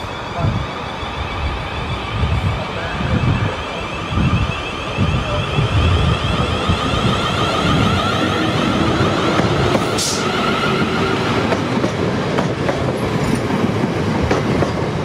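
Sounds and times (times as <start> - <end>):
electric train arriving: 0.0 - 15.0.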